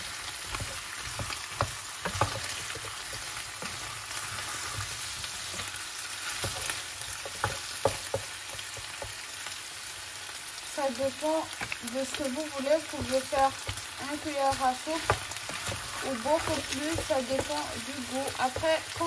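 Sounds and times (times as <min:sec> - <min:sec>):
food sizzling in a saucepan: 0:00.0 - 0:19.0
wooden spoon knocking on pan: 0:00.5 - 0:03.8, 0:06.4 - 0:09.2, 0:12.7 - 0:19.0.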